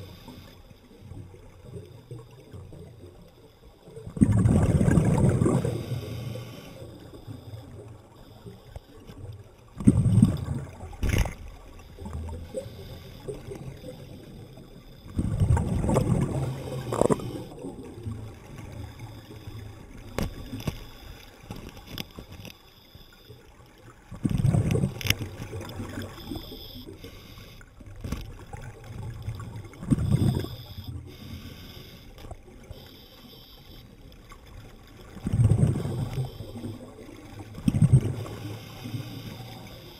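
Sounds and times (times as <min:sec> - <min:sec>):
faint water noise: 0:00.0 - 0:39.9
gushes of exhaled bubbles: 0:04.0 - 0:06.9, 0:09.7 - 0:14.1, 0:15.1 - 0:20.6, 0:24.1 - 0:26.9, 0:27.9 - 0:31.1, 0:35.0 - 0:39.7
small clicks: 0:11.0 - 0:11.5, 0:20.0 - 0:23.4, 0:24.2 - 0:26.6.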